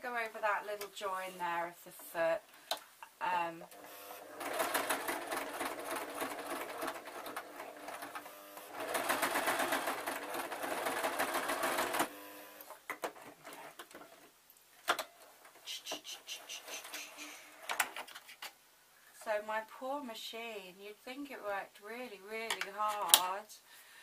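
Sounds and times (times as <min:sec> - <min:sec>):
sewing machine stitching: 0:04.2 - 0:12.2.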